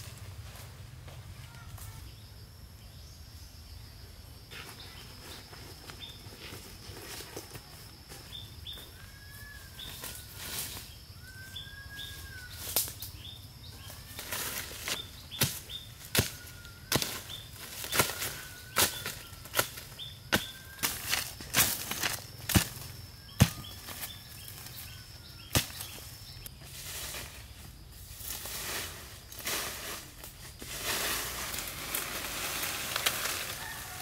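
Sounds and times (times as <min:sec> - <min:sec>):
high insect tone: 0:00.9 - 0:34.0
birds chirping and whistling: 0:08.3 - 0:14.2, 0:14.8 - 0:21.3, 0:22.4 - 0:26.7.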